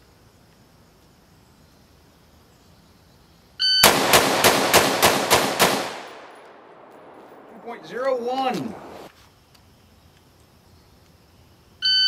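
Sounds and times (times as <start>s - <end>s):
rifle firing rapid shots: 3.8s - 8.2s.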